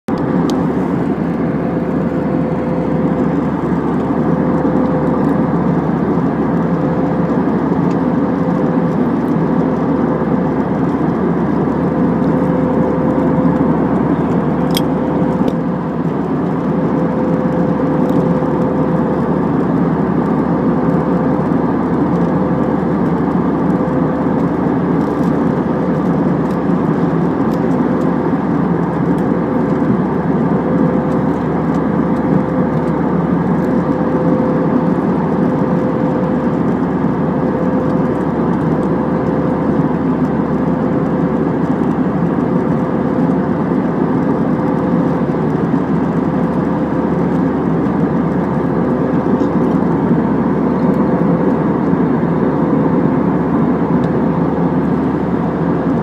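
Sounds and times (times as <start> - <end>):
jet airliner cabin noise: 0.1 - 56.0.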